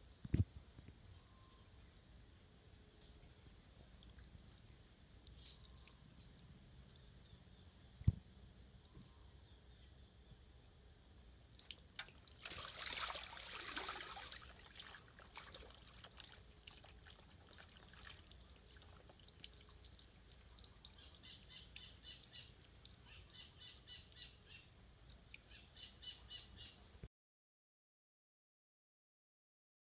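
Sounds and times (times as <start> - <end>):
water dripping: 0.0 - 27.0
water sloshing in a metal tub: 11.5 - 21.0.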